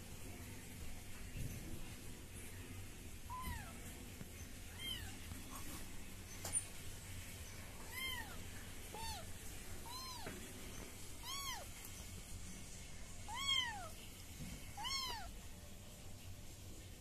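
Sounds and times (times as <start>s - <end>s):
kitten mewing: 3.3s - 3.8s, 4.7s - 5.2s, 7.9s - 10.3s, 11.2s - 11.7s, 13.3s - 14.0s, 14.8s - 15.3s.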